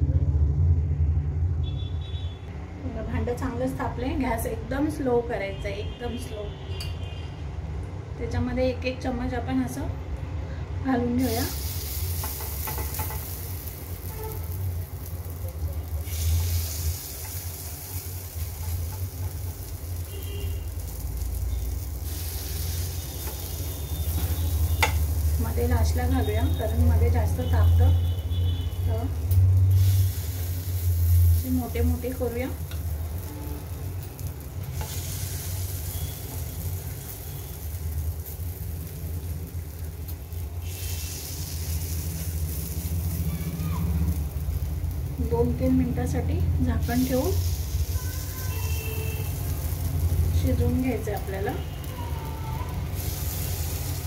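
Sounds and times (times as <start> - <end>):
batter sizzling in hot oil: 11.1 - 54.0.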